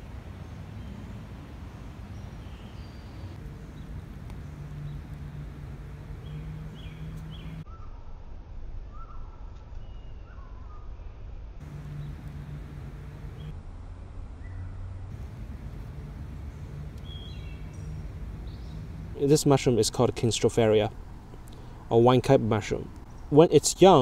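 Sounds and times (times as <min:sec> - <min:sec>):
low hum: 0:03.4 - 0:07.6, 0:11.6 - 0:21.9
low rumble: 0:11.6 - 0:19.2
short bird calls: 0:16.2 - 0:19.0.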